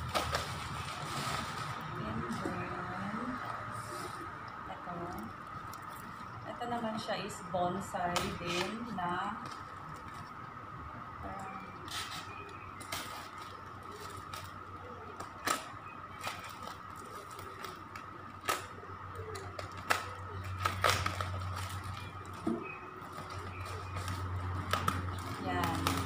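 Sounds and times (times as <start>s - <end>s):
paper bag rustling and crinkling: 0.0s - 3.0s, 11.8s - 26.0s
stiff paper crackling: 0.0s - 3.0s, 11.7s - 26.0s.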